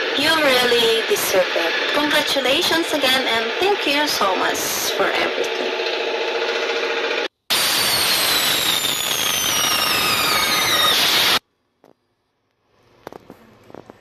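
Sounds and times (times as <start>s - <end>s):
whistling firework: 7.5s - 11.4s.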